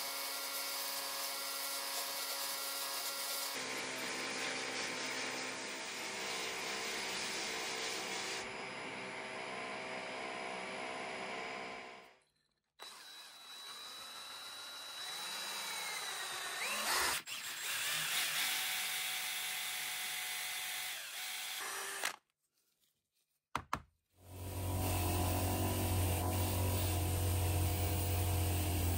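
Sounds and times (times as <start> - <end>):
power tool motor running: 2.7 - 12.1, 12.8 - 22.2, 24.3 - 28.9.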